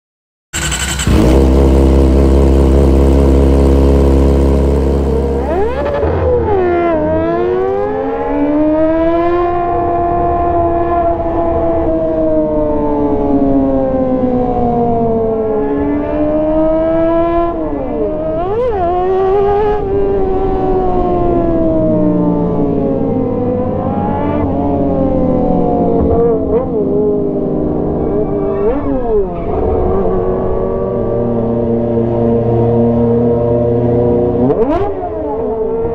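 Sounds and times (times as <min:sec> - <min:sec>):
loud low drone: 0:00.6 - 0:09.6
motorcycle engine howling at high revs: 0:00.6 - 0:35.9.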